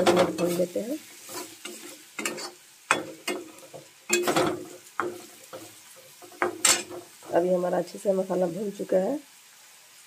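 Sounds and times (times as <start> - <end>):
metal spatula scraping metal pan: 0.0 - 7.3.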